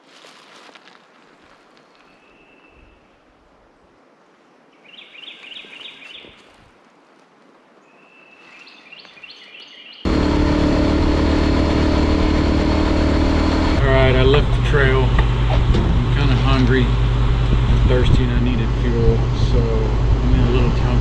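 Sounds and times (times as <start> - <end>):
birds calling: 4.8 - 6.6, 7.8 - 10.2
motorcycle engine running: 10.1 - 21.0.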